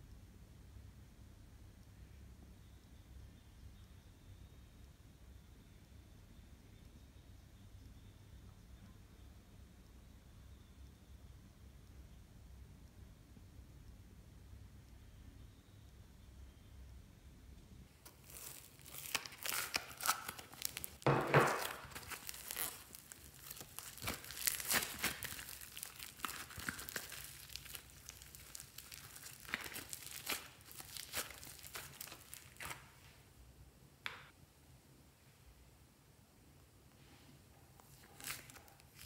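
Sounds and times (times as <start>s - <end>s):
slime crackling and popping: 18.0s - 32.9s, 37.9s - 39.0s.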